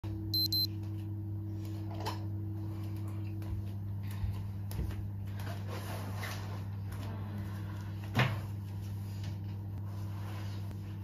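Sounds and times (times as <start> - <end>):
low electrical hum: 0.0 - 11.0
short high electronic beeps: 0.4 - 0.7.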